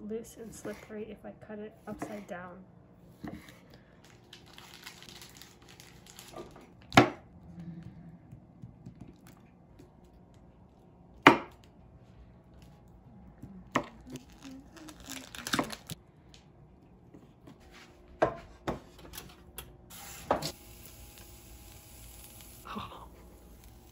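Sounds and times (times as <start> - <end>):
plastic packaging crinkling: 3.9 - 7.0, 13.9 - 16.0
knife chopping on wooden board: 11.3 - 11.6.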